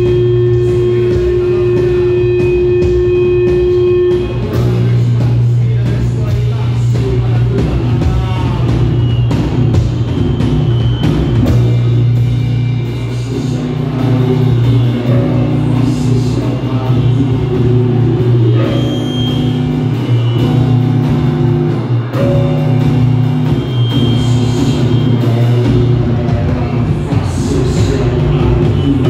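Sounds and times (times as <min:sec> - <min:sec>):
vocals through effects: 0:00.0 - 0:09.3, 0:11.4 - 0:20.8, 0:22.0 - 0:29.0
drum kit: 0:00.0 - 0:29.0
electric guitar: 0:00.0 - 0:29.0
steady low drone: 0:00.0 - 0:29.0.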